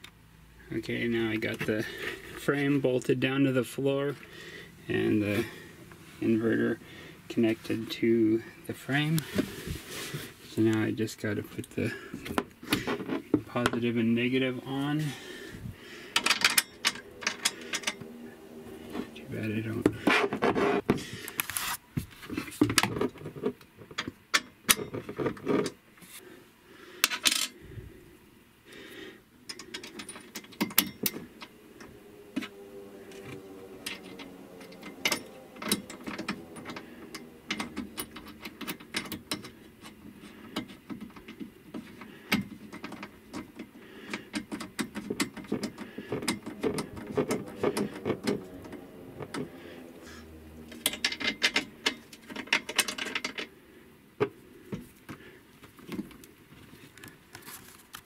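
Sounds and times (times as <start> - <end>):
metallic clicks of hardware tightening: 33.8 - 49.5.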